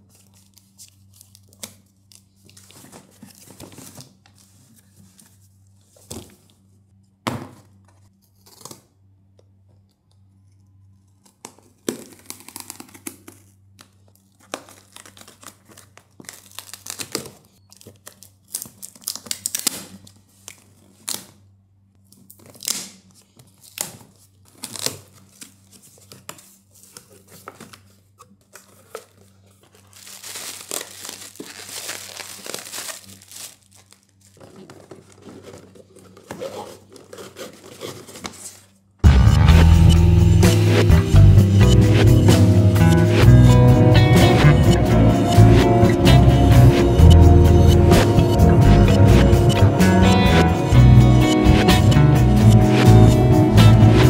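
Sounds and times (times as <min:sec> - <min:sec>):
plastic packing crinkling: 0:11.6 - 0:21.3, 0:22.2 - 0:38.8
packing tape ripping: 0:11.8 - 0:13.5, 0:14.5 - 0:21.4, 0:28.8 - 0:38.5.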